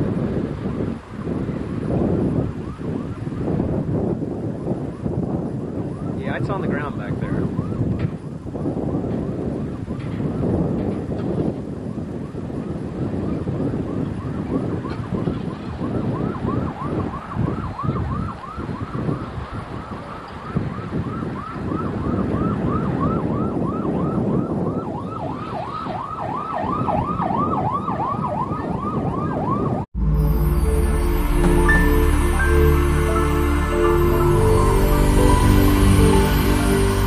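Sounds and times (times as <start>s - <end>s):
wind rumble on microphone: 0.0s - 37.0s
siren yelping: 13.8s - 37.0s
music: 30.0s - 37.0s.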